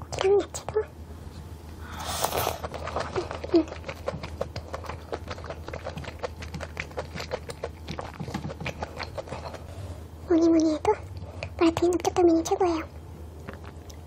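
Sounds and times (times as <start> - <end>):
slurping food: 2.0 - 9.9
chewing with wet clicks and smacks: 2.7 - 9.7, 13.4 - 14.0.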